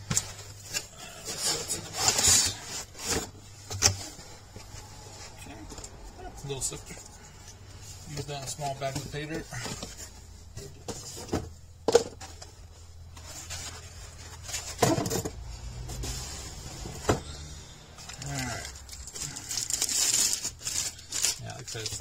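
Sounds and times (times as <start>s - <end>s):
plastic bags crinkling: 17.5s - 22.0s.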